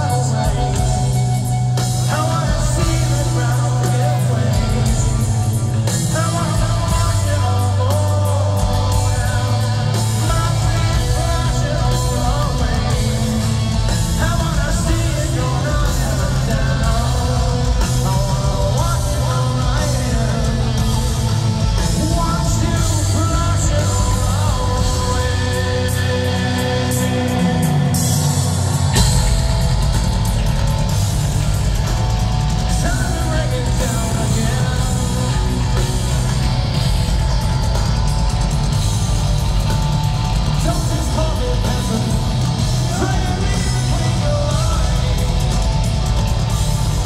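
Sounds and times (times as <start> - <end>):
person singing: 0.0 - 29.1
metal band playing live: 0.0 - 47.0.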